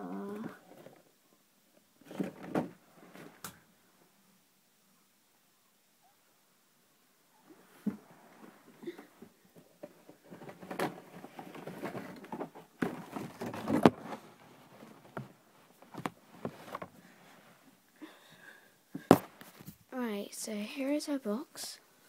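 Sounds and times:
rustling and shuffling: 0:00.0 - 0:04.3, 0:07.3 - 0:22.0.

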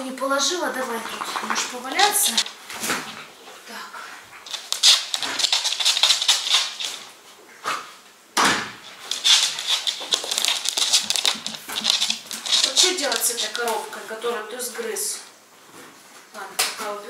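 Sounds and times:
puppy rustling on a towel: 0:08.8 - 0:14.5.

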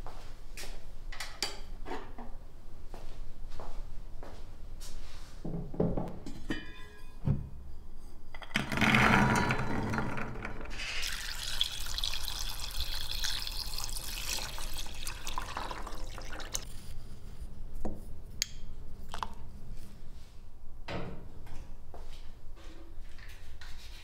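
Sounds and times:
water pouring from jug: 0:10.7 - 0:16.6
water drips: 0:11.0 - 0:16.6.

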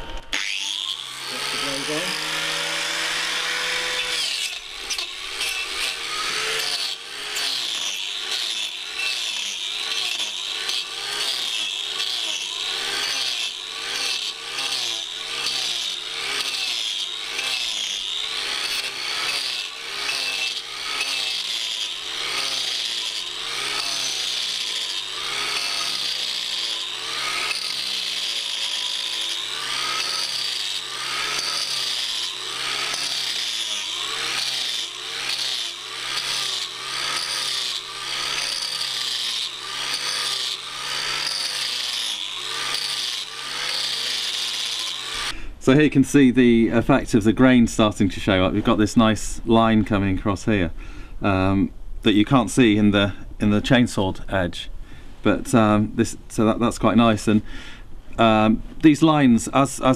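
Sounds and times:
angle grinder planing wood: 0:00.0 - 0:46.1.

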